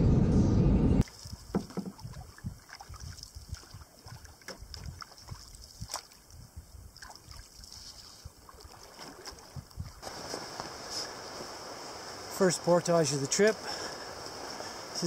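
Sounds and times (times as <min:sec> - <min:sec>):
paddle dipping and dripping: 0:01.0 - 0:15.0.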